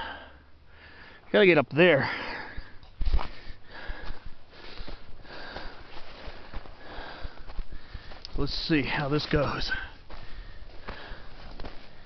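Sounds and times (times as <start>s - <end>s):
man breathing hard: 0.0s - 1.3s, 2.0s - 8.3s, 9.5s - 12.0s
footsteps on gravelly soil: 3.0s - 12.0s.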